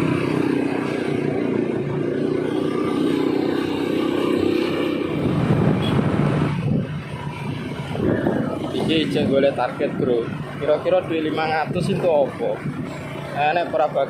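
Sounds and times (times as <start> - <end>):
motorcycle engine running: 0.0 - 14.0
wind rush on microphone: 4.8 - 10.7, 11.6 - 13.0.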